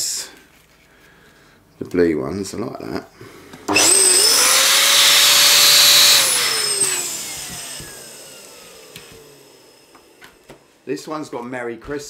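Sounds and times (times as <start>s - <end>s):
electric balloon pump: 3.7s - 10.7s.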